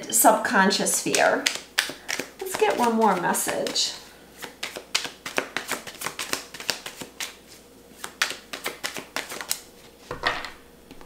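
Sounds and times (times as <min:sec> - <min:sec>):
cards being shuffled: 0:01.0 - 0:03.8, 0:04.4 - 0:10.2
card snap: 0:01.1 - 0:02.9.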